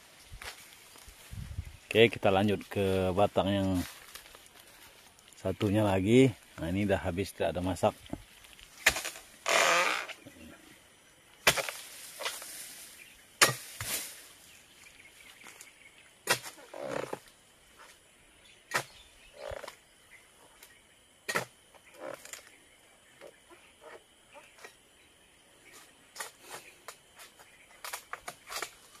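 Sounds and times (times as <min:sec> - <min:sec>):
chisel chopping palm fronds: 0:08.8 - 0:10.1, 0:11.4 - 0:12.6, 0:13.4 - 0:14.2, 0:16.2 - 0:17.3, 0:18.7 - 0:18.9, 0:21.3 - 0:22.5, 0:26.1 - 0:29.0.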